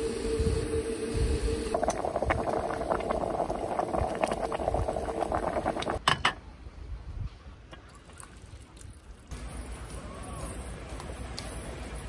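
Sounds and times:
pot boiling and bubbling: 0.0 - 6.0.

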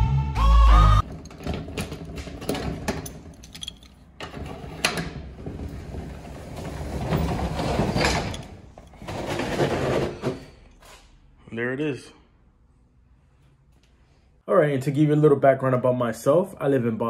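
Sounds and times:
metal clicks and clanks: 1.0 - 5.2
roll-up door rattling: 1.0 - 10.4
key working a padlock: 1.2 - 4.2.

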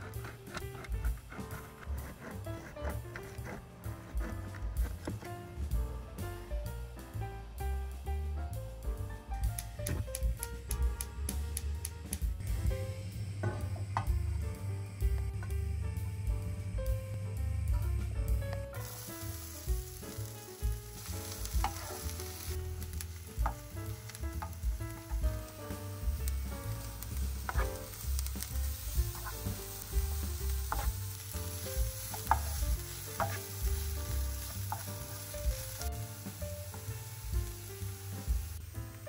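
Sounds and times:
food sizzling in oil: 18.7 - 39.0
utensil knocking against pan: 32.1 - 32.6, 33.2 - 33.4.

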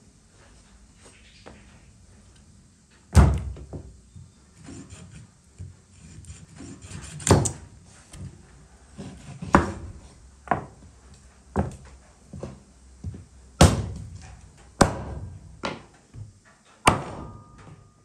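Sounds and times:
knife chopping on wooden board: 6.8 - 7.6, 9.0 - 10.8, 14.8 - 15.8.

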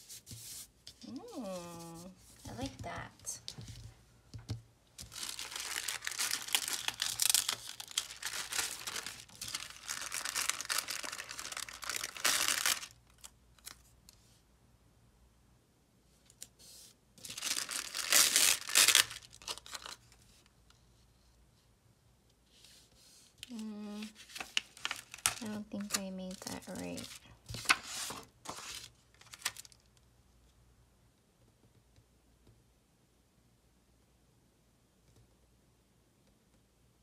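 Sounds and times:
plastic sheet crinkling: 5.0 - 13.8, 17.2 - 20.1, 23.5 - 29.9.

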